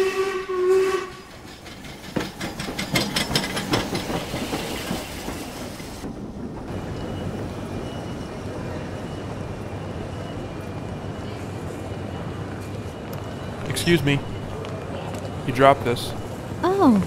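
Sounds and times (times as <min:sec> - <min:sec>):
steam whistle: 0:00.0 - 0:01.4
rumbling hiss of train: 0:00.0 - 0:17.0
train wheels clacking over rail joints: 0:01.0 - 0:08.3.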